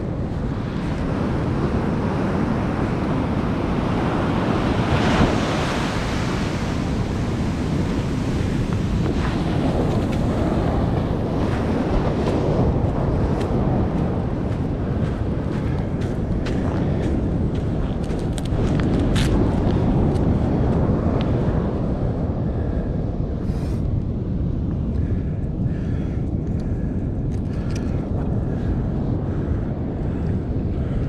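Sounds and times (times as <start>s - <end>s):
wind buffeting microphone: 0.0s - 31.0s
surf breaking on beach: 0.5s - 14.5s.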